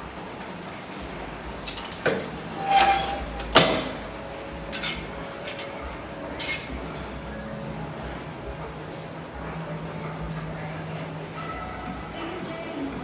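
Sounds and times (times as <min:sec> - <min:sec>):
heat press metallic clanks: 0:01.6 - 0:06.9
metallic ringing scrape: 0:02.5 - 0:04.0.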